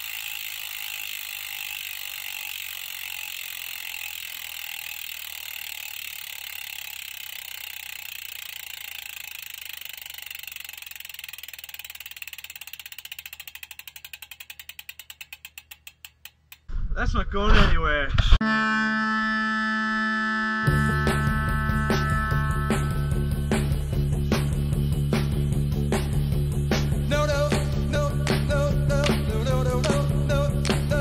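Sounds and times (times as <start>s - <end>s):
bicycle freehub clicking: 0.0s - 16.7s, 28.0s - 31.0s.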